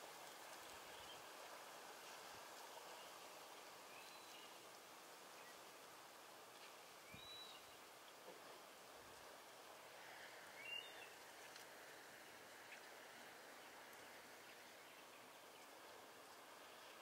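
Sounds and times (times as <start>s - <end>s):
steady outdoor hiss: 0.0s - 17.0s.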